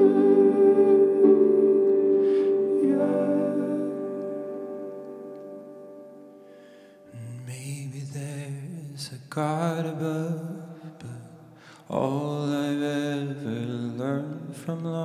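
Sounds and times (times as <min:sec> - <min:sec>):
man singing long notes: 0:00.0 - 0:04.7
electric keyboard: 0:00.0 - 0:07.2.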